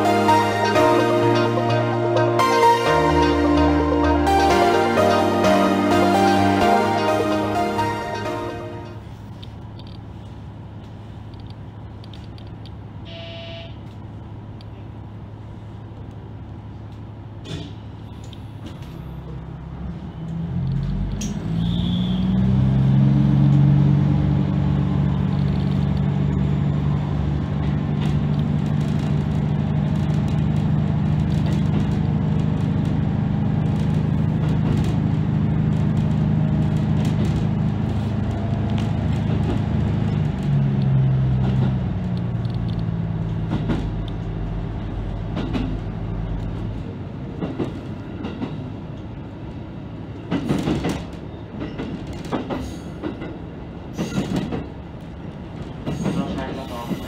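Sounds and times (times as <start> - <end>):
diesel railcar engine droning: 0.0 - 57.0
wheels clicking over rail joints: 27.6 - 49.2, 50.2 - 57.0.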